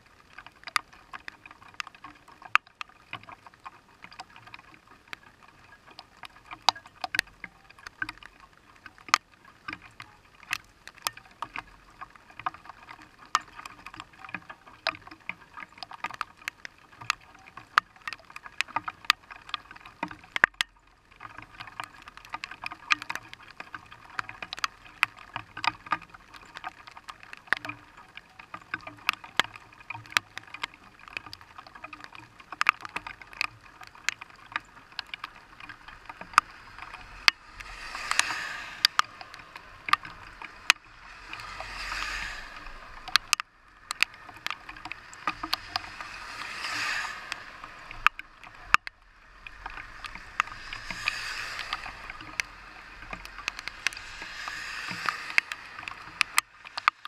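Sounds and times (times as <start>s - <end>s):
raindrops tapping on glass: 0.0s - 42.4s.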